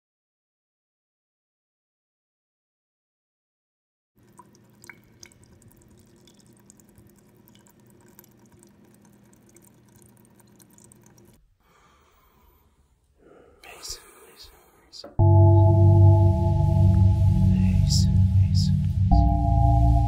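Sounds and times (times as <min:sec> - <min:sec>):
water dripping into a sink: 0:04.2 - 0:11.4
steady low hum: 0:15.2 - 0:20.0.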